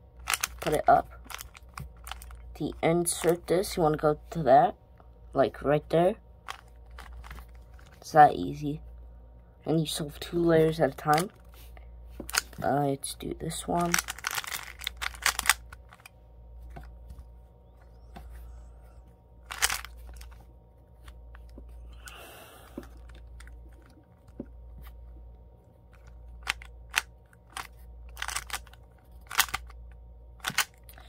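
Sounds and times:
steady low hum: 0:00.0 - 0:31.0
hands rustling on cube: 0:00.2 - 0:02.3, 0:13.9 - 0:18.6, 0:19.4 - 0:25.2, 0:25.9 - 0:29.7, 0:30.4 - 0:30.8
puzzle cube clicking: 0:00.2 - 0:02.3, 0:12.3 - 0:12.6, 0:13.8 - 0:16.1, 0:19.5 - 0:20.3, 0:26.0 - 0:29.8, 0:30.4 - 0:31.0.

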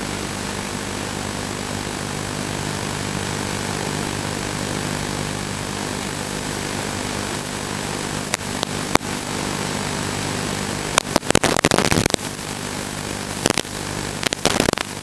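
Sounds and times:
crackling static: 0:00.0 - 0:15.0
steady buzzing hum: 0:00.0 - 0:15.0
sharp clicks: 0:11.0 - 0:12.2, 0:13.4 - 0:15.0.

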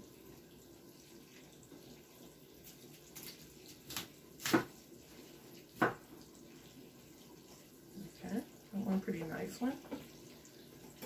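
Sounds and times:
knife cutting cauliflower on board: 0:03.2 - 0:04.8.

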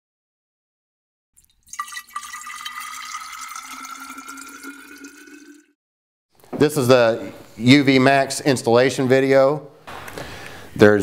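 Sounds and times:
liquid pouring and filling: 0:01.4 - 0:05.8.

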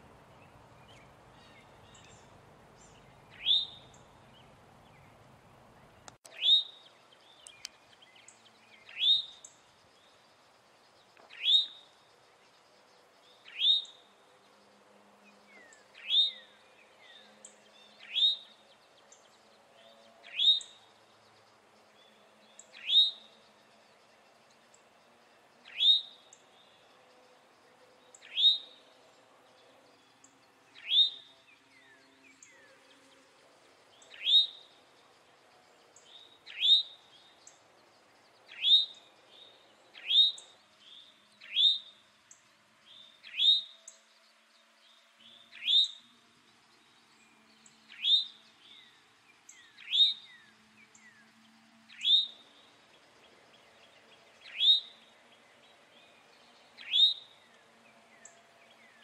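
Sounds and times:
bird alarm call: 0:00.8 - 0:04.5, 0:06.3 - 0:06.9, 0:30.8 - 0:31.3, 0:34.0 - 0:34.7, 0:36.0 - 0:37.3, 0:38.5 - 0:42.0, 0:49.5 - 0:50.4, 0:51.9 - 0:52.5, 0:54.4 - 0:55.0, 0:56.8 - 0:57.5.

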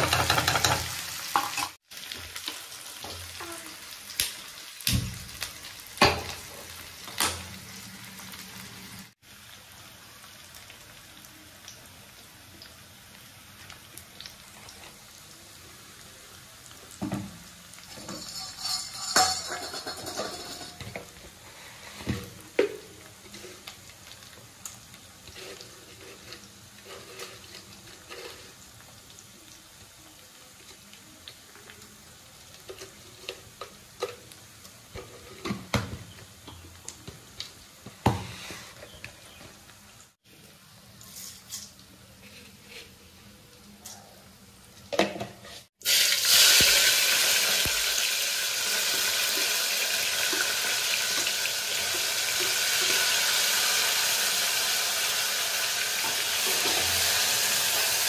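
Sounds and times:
utensils clinking against pot: 0:00.0 - 0:01.8, 0:17.9 - 0:21.1, 0:56.0 - 0:57.2.

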